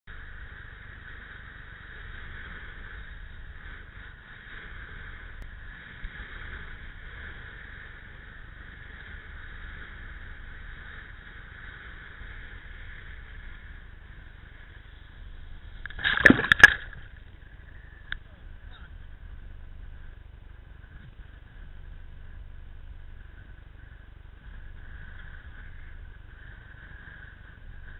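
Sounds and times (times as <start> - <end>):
muffled wind and water rush: 0.1 - 27.9
water crashing: 15.4 - 17.6.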